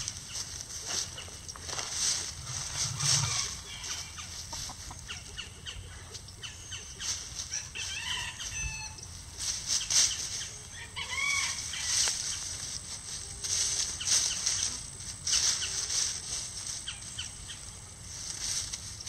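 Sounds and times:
hens clucking: 0:00.0 - 0:18.4
chickens scratching in dry leaves: 0:00.0 - 0:19.0.

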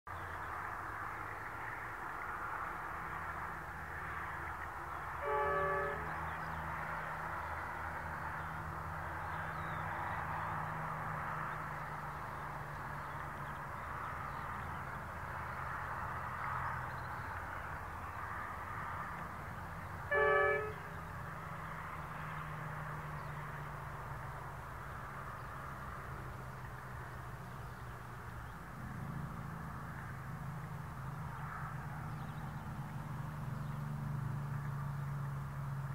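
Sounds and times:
diesel locomotive engines droning: 0:00.1 - 0:35.9
locomotive horn blasts: 0:05.2 - 0:06.2, 0:20.1 - 0:21.0.

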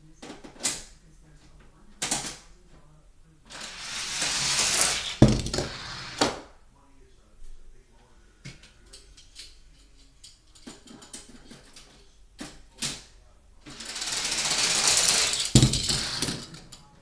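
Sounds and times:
toy cars rattling down plastic track: 0:03.5 - 0:06.4, 0:13.7 - 0:16.9.

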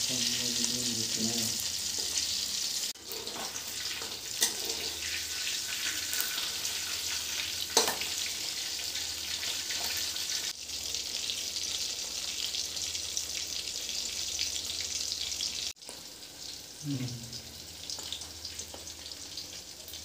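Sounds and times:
fish frying in oil: 0:00.0 - 0:20.0
metal spatula scraping a pan: 0:03.0 - 0:08.2.

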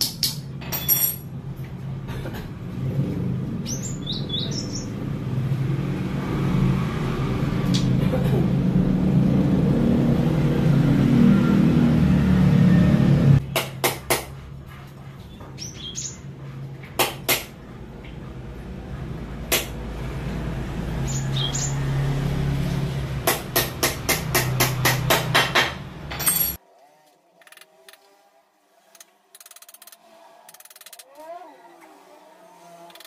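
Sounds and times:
bird chirping: 0:03.6 - 0:05.1, 0:15.2 - 0:16.3, 0:21.0 - 0:22.0.

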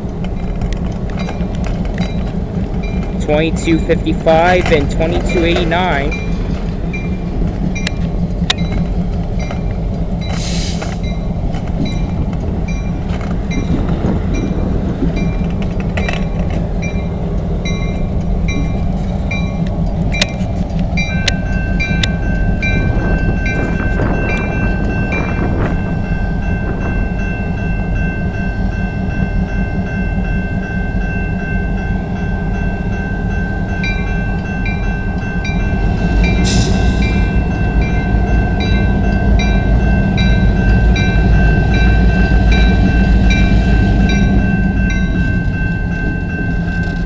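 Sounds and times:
diesel locomotives passing: 0:00.0 - 0:47.0
level-crossing bell ringing: 0:01.2 - 0:10.4, 0:20.9 - 0:47.0.

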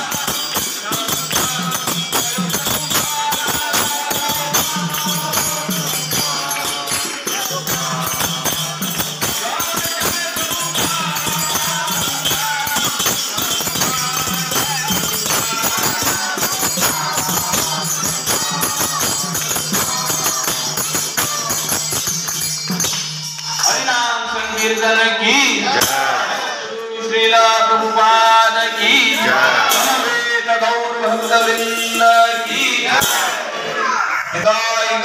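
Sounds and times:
person chanting: 0:00.0 - 0:21.9
drum played in fast strokes: 0:00.0 - 0:23.1
hand cymbals jingling: 0:00.0 - 0:26.9, 0:28.5 - 0:33.6.

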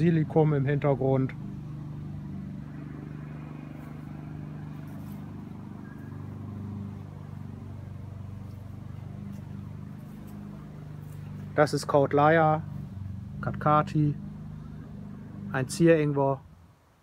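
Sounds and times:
engine droning: 0:00.0 - 0:17.0.

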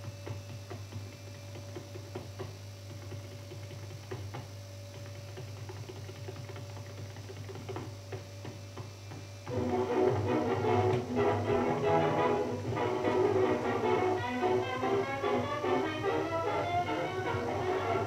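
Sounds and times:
tap shoes striking stage floor: 0:00.0 - 0:18.0
steady low hum: 0:07.9 - 0:18.0.

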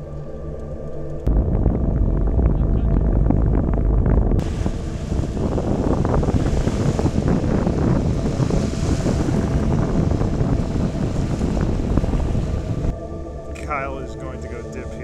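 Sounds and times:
wind buffeting microphone: 0:01.2 - 0:15.0
lake waves washing onto shore: 0:01.3 - 0:12.9.

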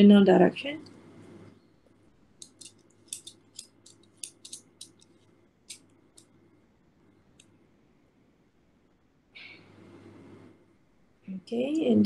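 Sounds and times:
caliper clicks and scrapes: 0:02.4 - 0:06.3.

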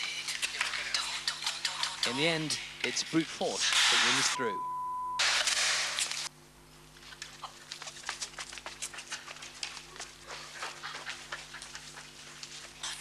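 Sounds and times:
low steady hum: 0:04.3 - 0:05.3.

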